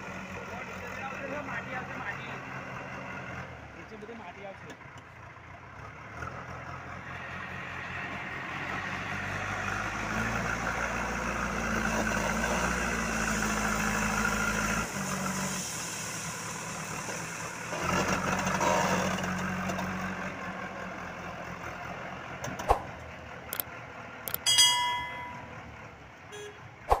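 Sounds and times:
diesel engine under load: 0.0s - 27.0s
clicks: 24.3s - 25.4s.

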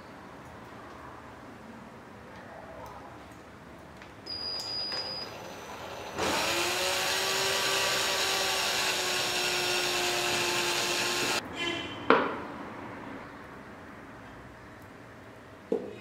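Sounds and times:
drill driving screw into wood: 5.3s - 11.4s.

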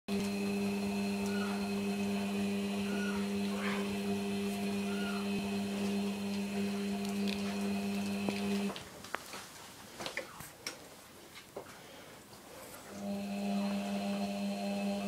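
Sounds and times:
washing machine motor hum: 0.0s - 8.8s, 12.9s - 15.0s
faint high whine: 0.1s - 8.8s, 12.9s - 15.0s.

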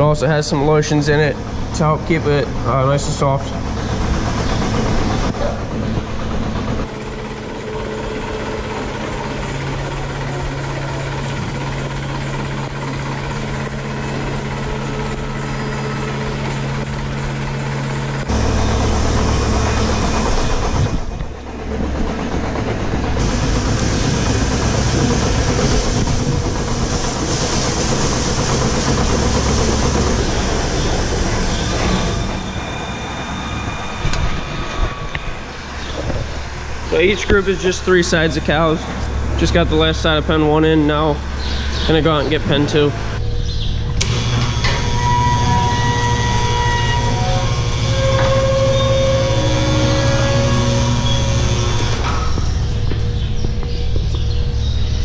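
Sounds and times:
milking machinery drone: 0.0s - 55.0s.

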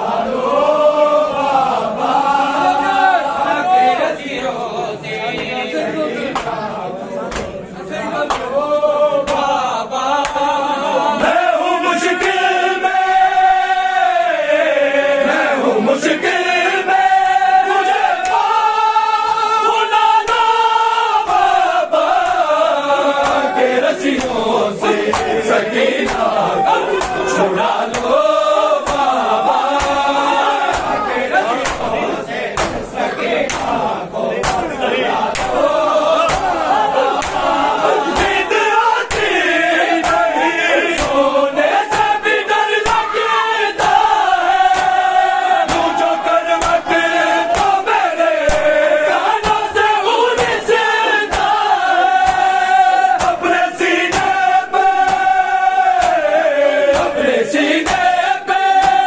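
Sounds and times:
men chanting a lament: 0.0s - 59.0s
hands slapping bare chests: 6.3s - 6.6s, 7.3s - 7.6s, 8.2s - 8.6s, 9.2s - 9.6s, 10.2s - 10.5s, 18.1s - 18.6s, 21.3s - 22.5s, 23.1s - 43.2s, 43.8s - 57.2s, 57.8s - 59.0s.

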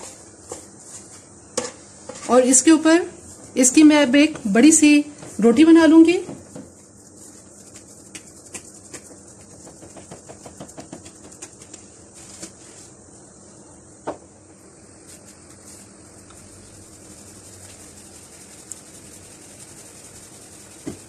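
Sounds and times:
faint steady hiss: 0.0s - 21.0s
hands patting dough: 5.2s - 12.6s, 15.0s - 21.0s.

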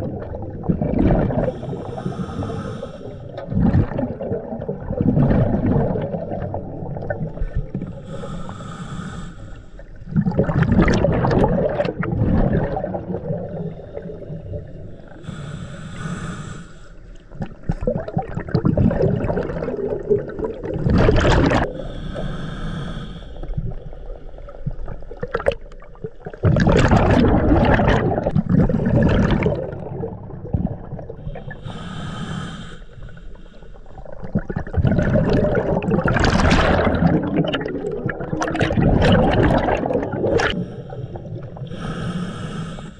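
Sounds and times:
rush of exhaled bubbles: 0.0s - 8.5s, 10.0s - 15.4s, 17.3s - 22.3s, 23.5s - 31.8s, 33.9s - 41.9s
hissing regulator inhales: 1.4s - 3.4s, 7.9s - 10.0s, 13.6s - 17.1s, 21.6s - 24.6s, 31.3s - 34.0s, 40.5s - 42.9s.

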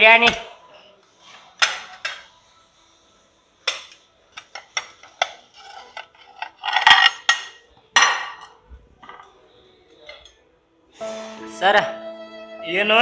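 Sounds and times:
plates and spoons clinking: 1.3s - 2.4s, 3.6s - 10.5s.

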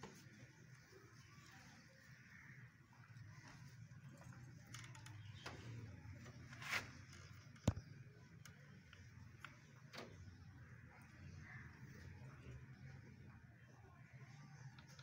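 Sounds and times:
small clicks: 4.2s - 6.4s.

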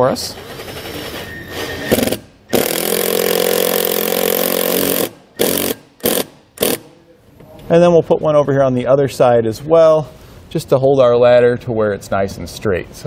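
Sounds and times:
cordless impact driver: 0.5s - 7.0s.

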